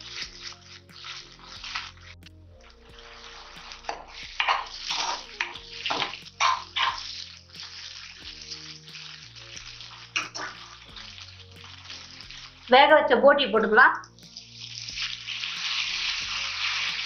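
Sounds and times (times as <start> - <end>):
spatula stirring sizzling food: 0.0 - 13.0, 14.0 - 17.0.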